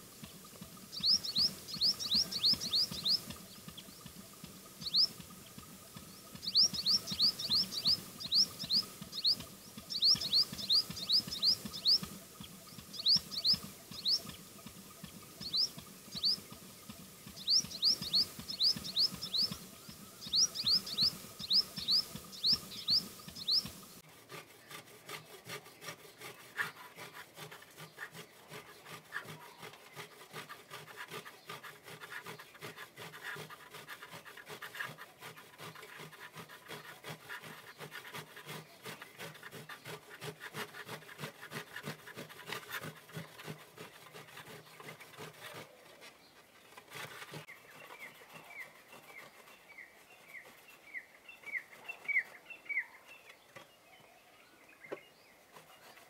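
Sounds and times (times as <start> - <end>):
bird chirping: 0.0 - 24.0, 44.3 - 56.0
hand grater rasping: 20.2 - 45.8.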